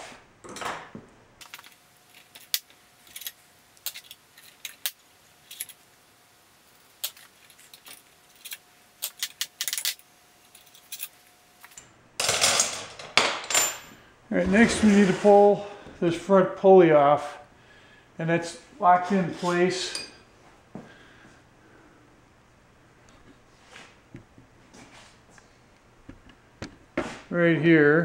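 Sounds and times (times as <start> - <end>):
metal parts clattering: 1.4 - 5.8, 7.0 - 14.0.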